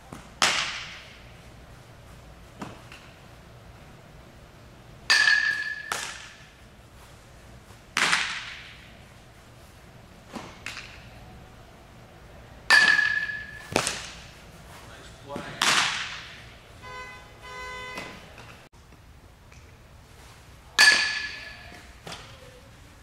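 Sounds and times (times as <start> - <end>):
balls being caught: 0.0 - 1.2, 2.6 - 3.2, 5.1 - 6.5, 7.9 - 8.9, 12.7 - 14.2
metal bat hitting ball: 0.4 - 1.2, 5.1 - 6.4, 8.0 - 8.9, 12.7 - 14.2, 20.8 - 21.6.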